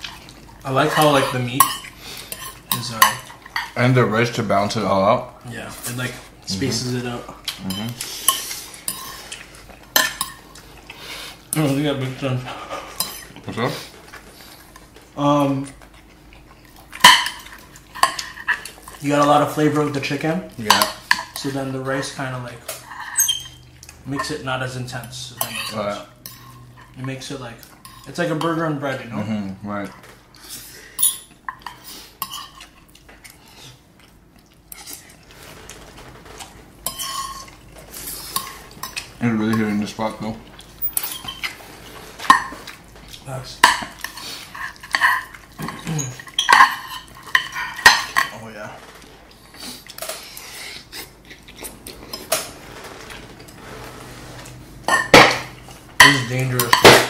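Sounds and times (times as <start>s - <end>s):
cutlery scraping on plates: 0.8s - 3.8s, 7.5s - 10.6s, 12.4s - 13.4s, 16.9s - 19.4s, 20.6s - 24.4s, 25.4s - 28.6s, 30.9s - 33.4s, 34.7s - 39.9s, 40.8s - 42.8s, 43.6s - 48.4s, 49.8s - 57.0s
chewing: 12.6s - 19.0s, 30.3s - 36.6s, 49.0s - 52.4s
cutlery clatter: 43.6s - 48.4s, 54.9s - 57.0s.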